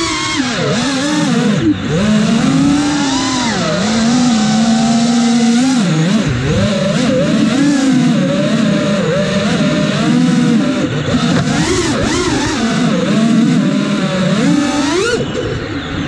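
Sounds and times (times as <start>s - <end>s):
quadcopter motors whining: 0.0s - 16.0s.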